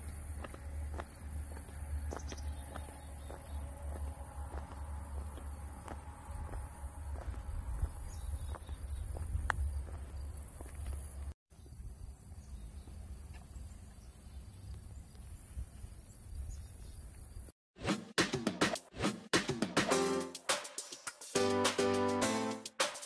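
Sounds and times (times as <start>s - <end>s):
crickets and insects chirping: 0.0s - 17.5s.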